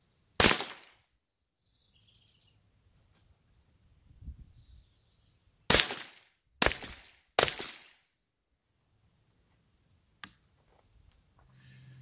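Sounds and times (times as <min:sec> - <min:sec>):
rifle shots with echo: 0:00.4 - 0:01.0, 0:05.7 - 0:07.9.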